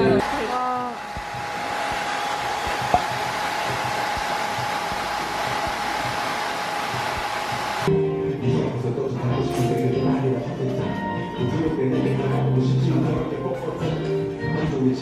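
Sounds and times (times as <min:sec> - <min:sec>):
hair dryer blowing: 0:00.0 - 0:07.9.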